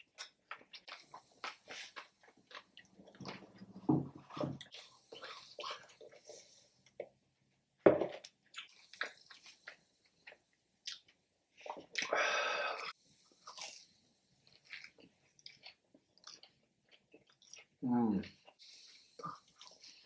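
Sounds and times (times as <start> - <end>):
biting and chewing: 14.4 - 18.4.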